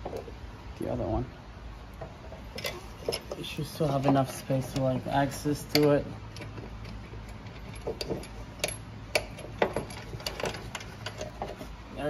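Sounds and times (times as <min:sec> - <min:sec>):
steady low hum: 0:00.0 - 0:12.0
metallic clicks of bolt and washer: 0:05.5 - 0:11.3.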